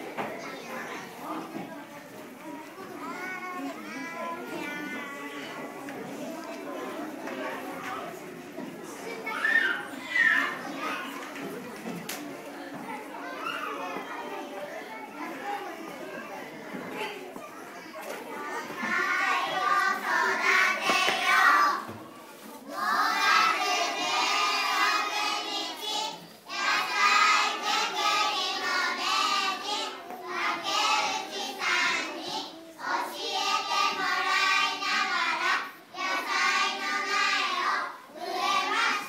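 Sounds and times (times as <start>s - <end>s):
children singing in unison: 18.7s - 22.0s, 22.7s - 39.0s.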